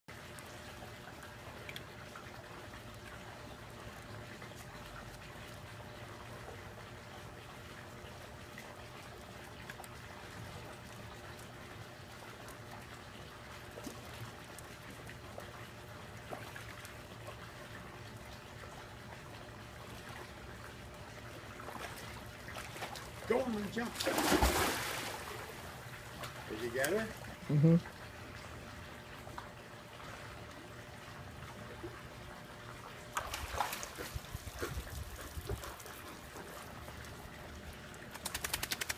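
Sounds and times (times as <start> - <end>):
pool water lapping: 0.1 - 38.9
water splashing and streaming off dog: 19.9 - 27.1, 33.1 - 38.9.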